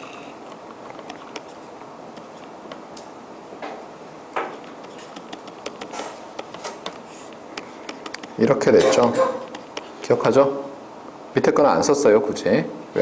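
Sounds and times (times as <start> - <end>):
room hiss: 0.0 - 13.0
stylus tapping on tablet: 1.0 - 2.8, 4.4 - 9.9.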